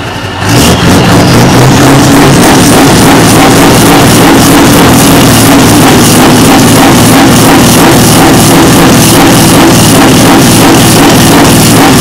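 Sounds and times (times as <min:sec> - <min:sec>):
truck engine running: 0:00.0 - 0:12.0
electronic dance music: 0:01.4 - 0:12.0.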